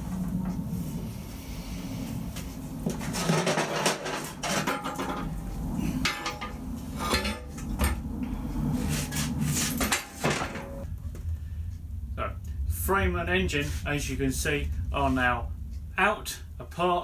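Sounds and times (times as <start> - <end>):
steel frame clanking: 3.0 - 8.0.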